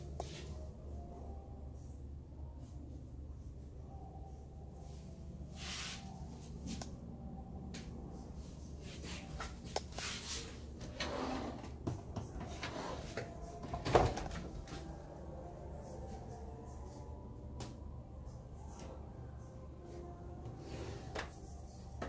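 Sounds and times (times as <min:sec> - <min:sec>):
drawer sliding open: 0:10.8 - 0:11.8, 0:12.4 - 0:14.4.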